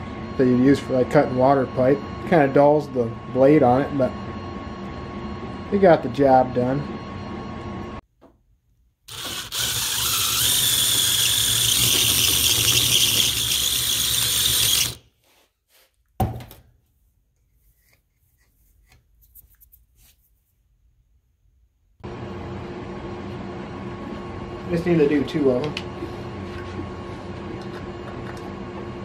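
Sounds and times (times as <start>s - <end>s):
cordless drill whining: 9.1s - 15.0s.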